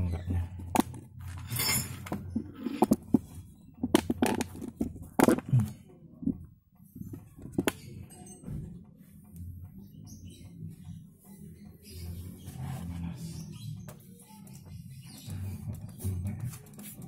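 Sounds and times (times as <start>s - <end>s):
metal scrape: 1.2s - 3.0s
metallic clinks and knocks: 1.2s - 3.4s.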